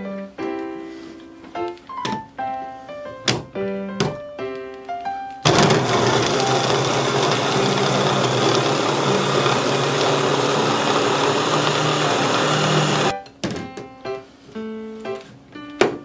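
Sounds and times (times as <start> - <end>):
electric hand blender whirring: 5.4 - 13.2.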